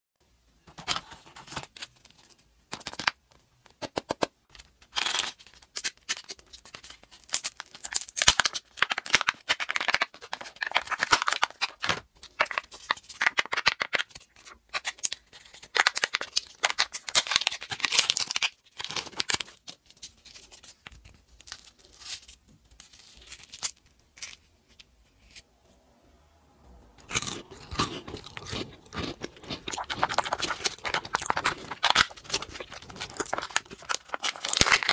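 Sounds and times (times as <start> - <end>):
foil wrapper crinkling: 5.0 - 24.4, 28.1 - 34.9.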